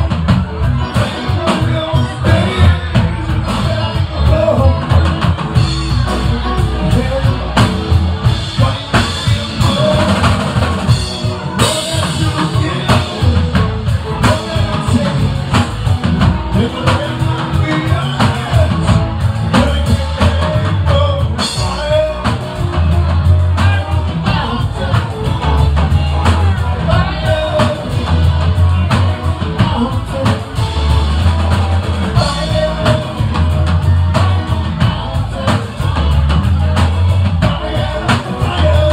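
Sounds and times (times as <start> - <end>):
bass line: 0.0 - 38.9
drum kit: 0.0 - 38.9
electric guitars: 0.0 - 38.9
person singing: 0.0 - 38.9.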